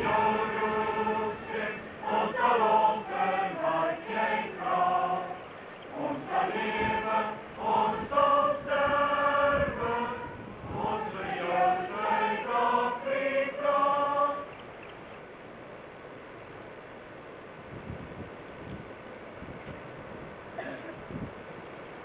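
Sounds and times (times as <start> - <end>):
group of voices singing: 0.0 - 14.6
faint steady hiss: 0.0 - 22.0.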